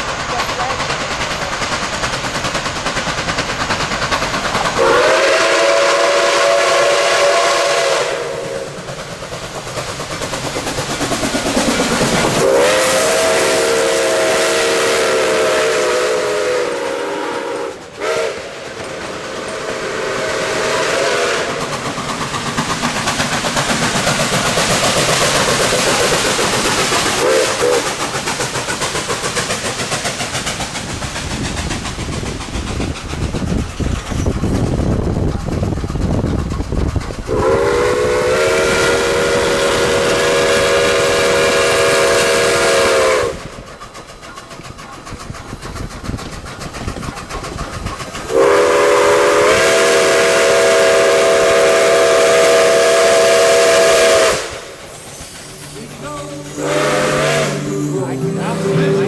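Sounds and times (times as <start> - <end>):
train rumbling and clattering past: 0.0 - 59.0
steam whistle blasts: 4.8 - 8.7, 12.4 - 21.6, 27.2 - 27.8, 37.3 - 43.5, 48.3 - 54.9, 56.0 - 59.0.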